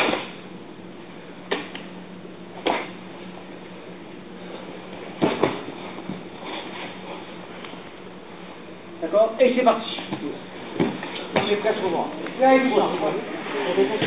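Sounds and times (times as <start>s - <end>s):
sharp slaps: 0.0s - 0.4s, 1.5s - 1.9s, 2.6s - 3.0s
faint steady hum: 0.0s - 14.0s
body thudding onto mat: 5.2s - 6.4s, 10.2s - 11.6s.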